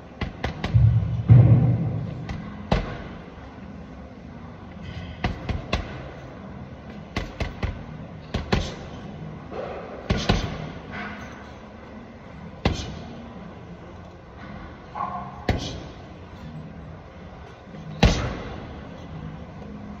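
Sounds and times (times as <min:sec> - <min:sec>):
punches thudding on heavy bag: 0:10.0 - 0:10.7.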